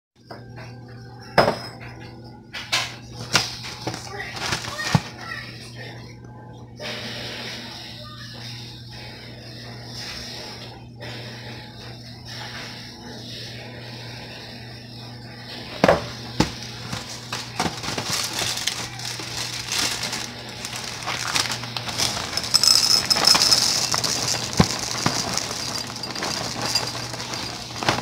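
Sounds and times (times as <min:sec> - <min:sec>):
cereal bag crinkling: 0:03.4 - 0:05.2, 0:16.4 - 0:28.0
cereal pouring into bowl: 0:16.9 - 0:28.0.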